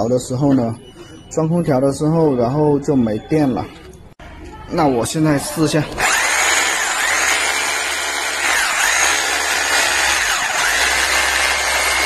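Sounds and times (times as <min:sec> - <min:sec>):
hammer drill motor whine: 0:05.9 - 0:12.0.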